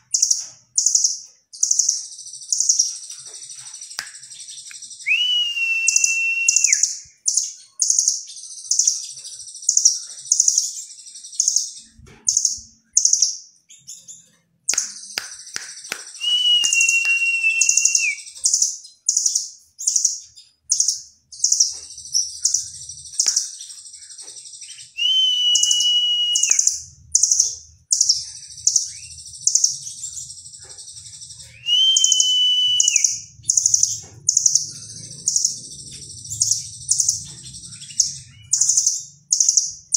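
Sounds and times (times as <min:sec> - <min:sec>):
bird long level whistle: 0:05.0 - 0:07.0, 0:16.2 - 0:18.4, 0:25.0 - 0:26.8, 0:31.5 - 0:33.3.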